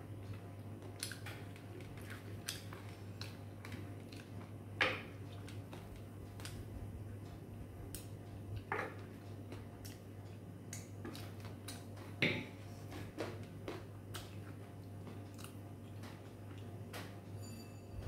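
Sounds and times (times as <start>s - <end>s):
steady low hum: 0.0s - 18.0s
person chewing: 0.8s - 4.5s, 9.8s - 11.9s, 12.7s - 16.7s.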